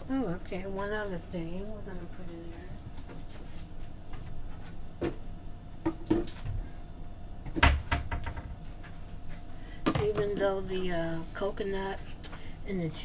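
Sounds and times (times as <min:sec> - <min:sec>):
steady low hum: 0:00.0 - 0:13.0
kitchen items knocking: 0:07.5 - 0:08.6.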